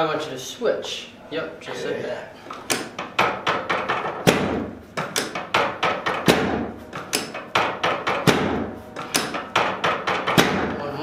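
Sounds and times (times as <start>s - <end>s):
table knocking: 2.5s - 10.8s.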